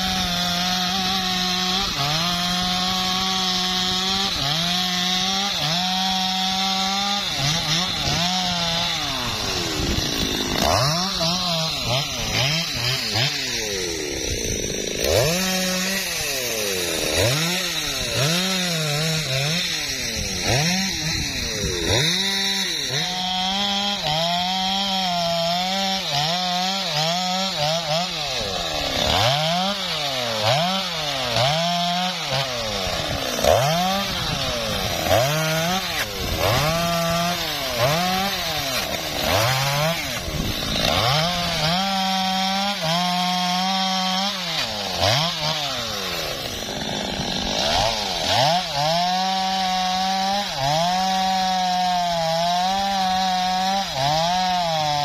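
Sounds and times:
chainsaw running at high revs: 0:00.0 - 0:55.0.

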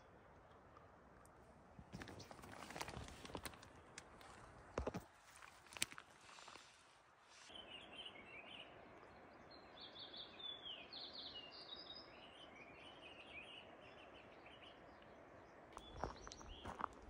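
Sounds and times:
faint steady hiss: 0:00.0 - 0:17.0
small birds chirping and trilling: 0:07.4 - 0:17.0.

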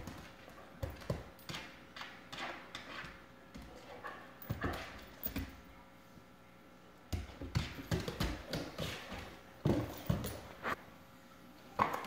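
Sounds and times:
dog paws thumping on hardwood floor: 0:00.0 - 0:05.6, 0:07.1 - 0:10.7.

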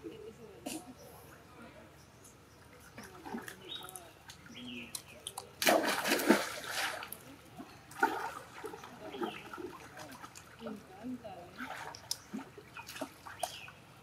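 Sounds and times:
water splashing: 0:02.9 - 0:13.8.

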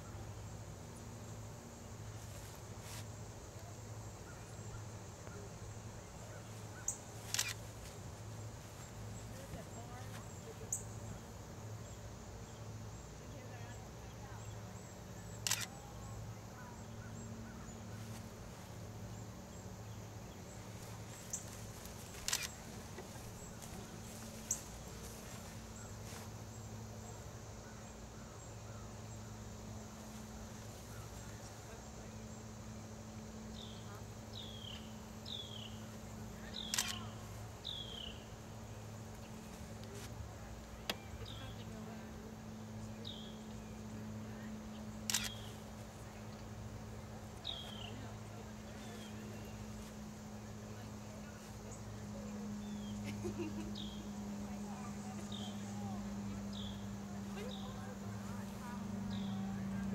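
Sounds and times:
steady low hum: 0:00.0 - 0:59.9
sharp clicks: 0:07.3 - 0:07.6, 0:15.4 - 0:15.8, 0:22.1 - 0:23.1, 0:36.6 - 0:37.0, 0:45.1 - 0:45.5.

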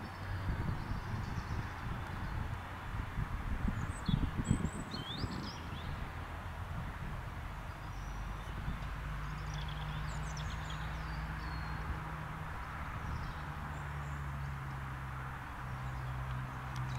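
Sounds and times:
small birds chirping: 0:00.0 - 0:02.6, 0:03.6 - 0:06.1, 0:07.6 - 0:12.0, 0:12.6 - 0:14.9, 0:15.5 - 0:16.9.

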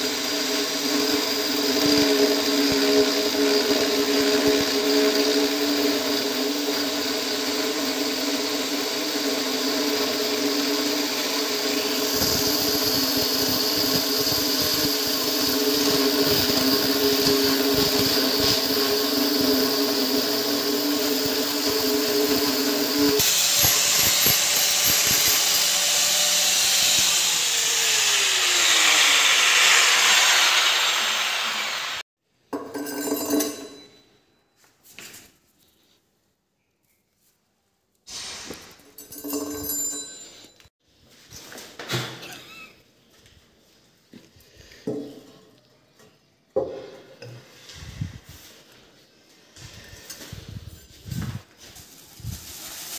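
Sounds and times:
angle grinder cutting stone: 0:00.0 - 0:32.0.

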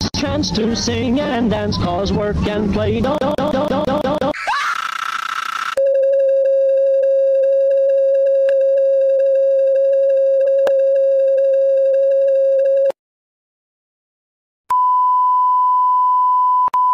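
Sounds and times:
fluttering electronic tone: 0:03.1 - 0:12.8
high pure beep tone: 0:14.7 - 0:16.9.

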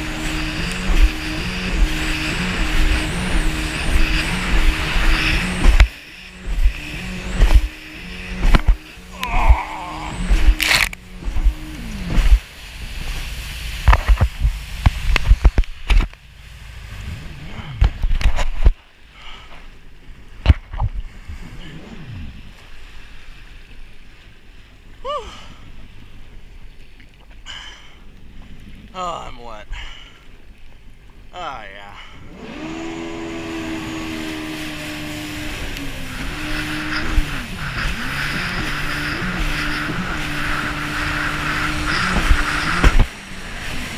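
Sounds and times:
jet ski engine running: 0:00.0 - 0:43.9
rushing water: 0:00.0 - 0:43.9
wind: 0:00.0 - 0:43.9
camera knocks and thumps: 0:13.8 - 0:16.1.

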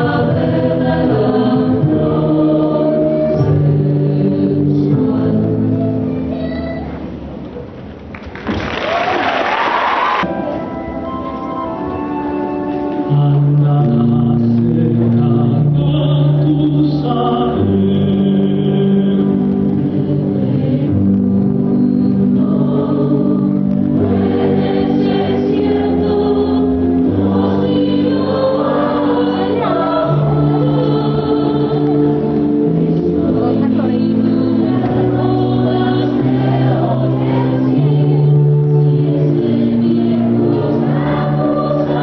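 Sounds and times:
choir-like singing: 0:00.0 - 0:06.0, 0:13.1 - 0:42.0
held keyboard chords: 0:10.2 - 0:42.0.

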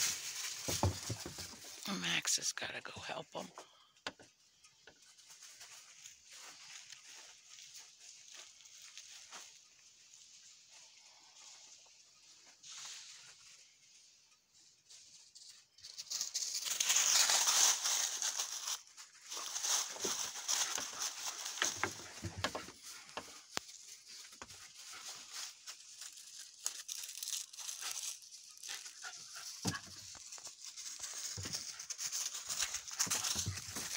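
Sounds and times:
footsteps crunching dry leaves: 0:00.0 - 0:02.2, 0:05.0 - 0:13.9, 0:15.9 - 0:33.9.

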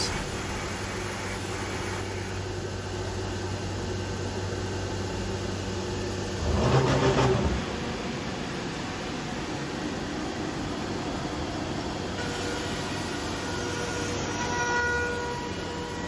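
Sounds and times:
cnc router humming: 0:06.4 - 0:16.0.

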